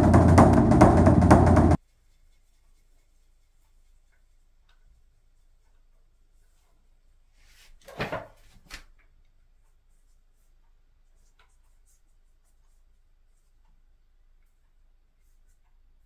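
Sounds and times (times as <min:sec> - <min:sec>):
brush scraping rub: 0:00.2 - 0:07.8.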